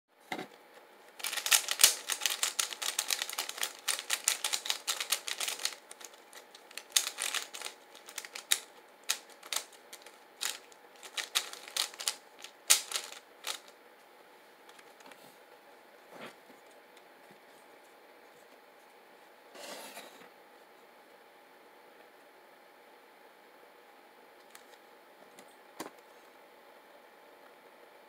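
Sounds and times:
plastic puzzle cube clicking: 1.2s - 13.7s.

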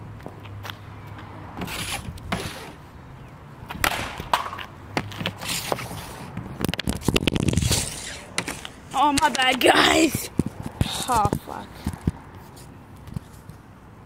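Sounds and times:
pucks scraping on pavement: 0.2s - 2.9s, 3.6s - 13.7s
hockey stick clacking pucks: 3.7s - 6.0s, 6.7s - 12.2s.

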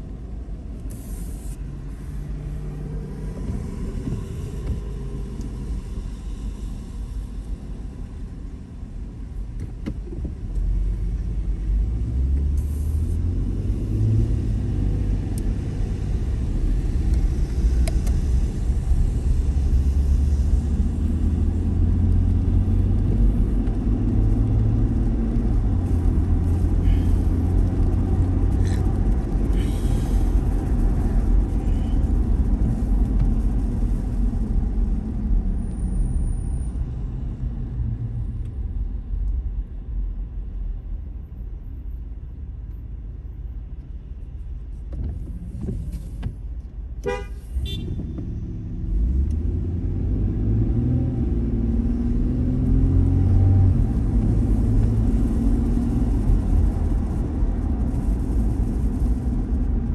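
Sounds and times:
engine and tyre rumble: 0.0s - 59.9s
tyre hiss on wet road: 0.9s - 9.2s, 12.2s - 23.0s, 24.4s - 36.7s, 53.2s - 59.8s
car horn toot: 47.0s - 48.0s.

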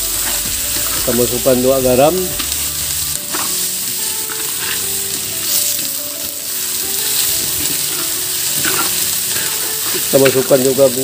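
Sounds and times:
vegetables sizzling in hot oil: 0.0s - 11.0s
spatula scraping a pan: 2.4s - 10.5s.

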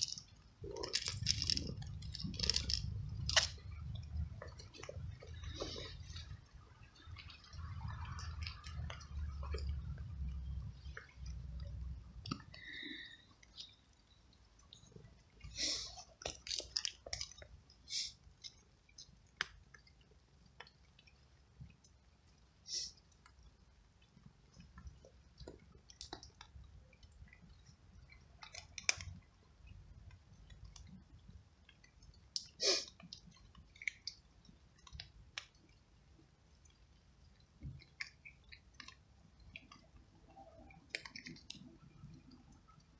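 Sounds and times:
cat crunching dry kibble: 0.0s - 6.4s, 15.5s - 21.2s, 24.0s - 26.6s, 27.3s - 29.3s
small clicks and ticks: 0.0s - 42.9s.

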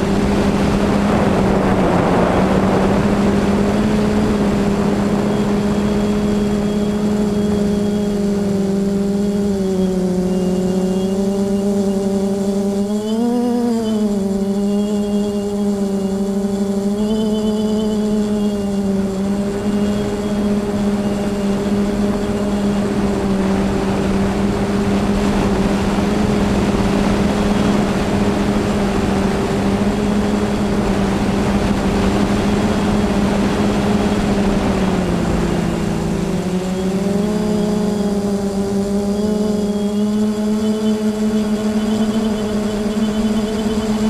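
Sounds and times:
wind rush: 0.0s - 10.7s, 18.5s - 39.0s
drone propellers humming: 0.0s - 44.0s.

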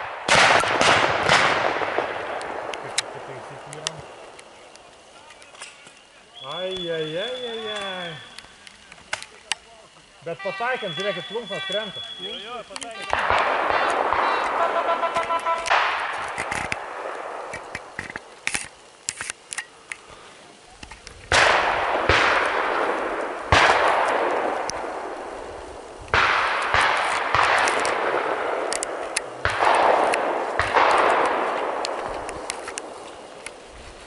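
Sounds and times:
shotgun shots echoing: 0.0s - 4.6s, 10.5s - 18.6s, 21.3s - 25.5s, 26.1s - 33.3s
small clicks and crackles: 2.3s - 10.2s, 11.8s - 21.6s, 22.2s - 34.0s.

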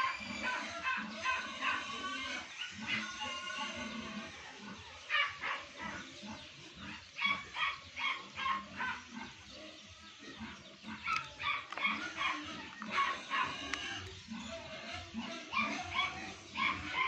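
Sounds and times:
dog barking: 5.0s - 6.0s, 7.2s - 9.1s, 11.0s - 13.8s, 15.5s - 17.0s.

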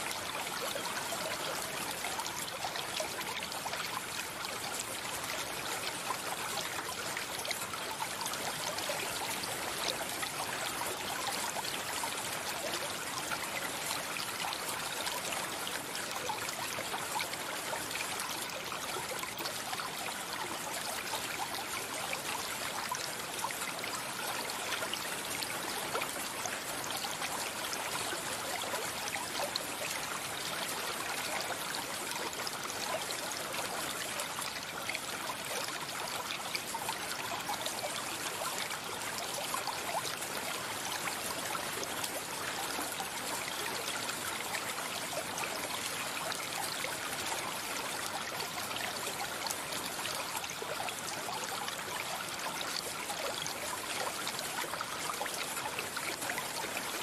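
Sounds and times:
stream water trickling: 0.0s - 57.0s.

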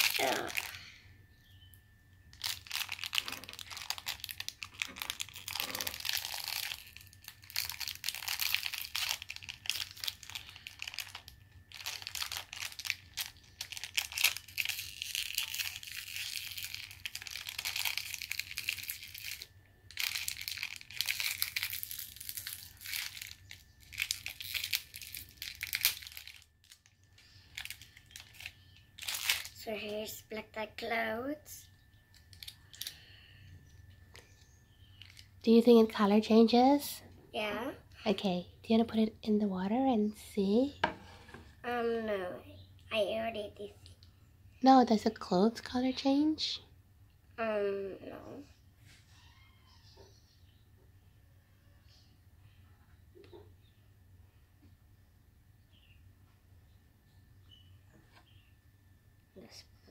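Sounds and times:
wrapper crinkling and tearing: 0.0s - 0.8s, 2.3s - 29.6s, 32.2s - 33.0s, 35.0s - 35.4s.

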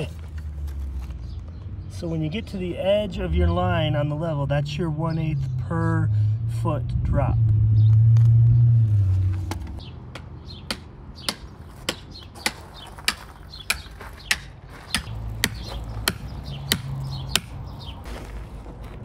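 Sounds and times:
sledgehammer blows ringing: 10.7s - 17.6s.

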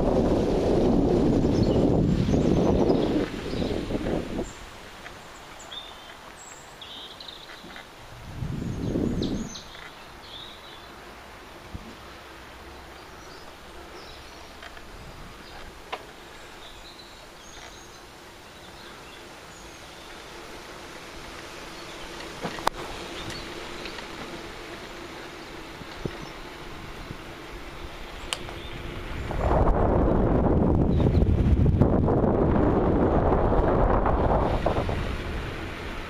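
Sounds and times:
wind buffeting microphone: 0.0s - 5.0s, 8.0s - 9.7s, 25.7s - 36.0s
bird chirps: 5.2s - 7.8s, 8.7s - 10.9s.

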